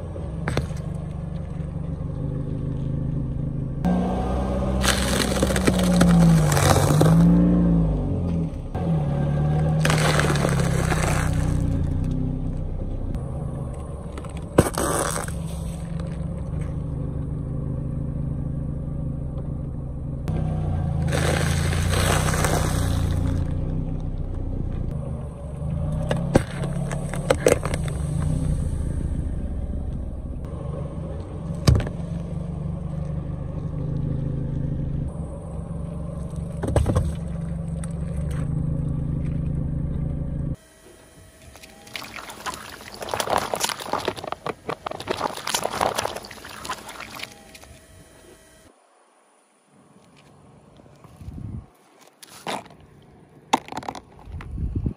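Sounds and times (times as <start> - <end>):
car engine running low: 0.0 - 48.7
objects crunching under tyre: 0.3 - 1.8, 3.8 - 12.7, 13.7 - 17.0, 20.3 - 25.0, 25.6 - 28.5, 41.5 - 48.1, 50.0 - 54.6.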